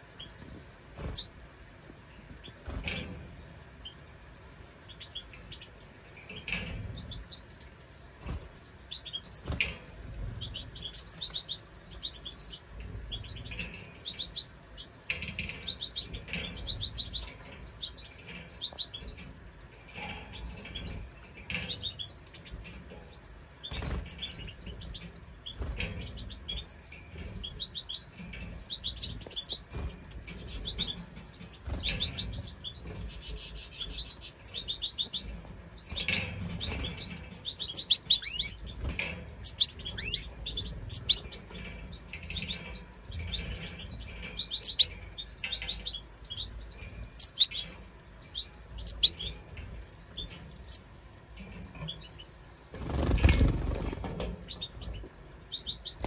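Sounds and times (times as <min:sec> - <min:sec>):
finches twittering: 0:23.6 - 0:50.9.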